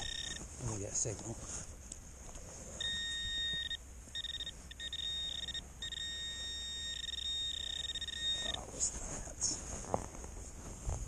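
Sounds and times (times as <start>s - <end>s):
metal detector beeping: 0.0s - 0.5s, 2.8s - 8.7s.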